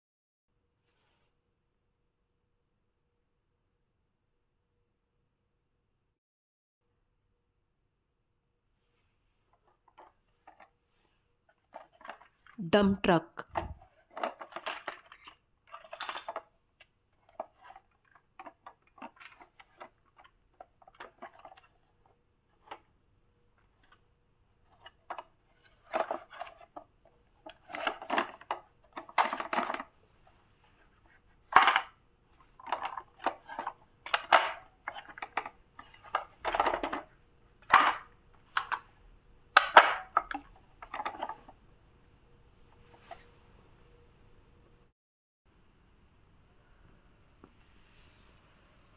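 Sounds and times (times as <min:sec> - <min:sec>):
plastic toys clattering: 0:09.6 - 0:10.8, 0:11.5 - 0:12.6, 0:13.4 - 0:22.9, 0:23.6 - 0:38.9, 0:39.5 - 0:41.6.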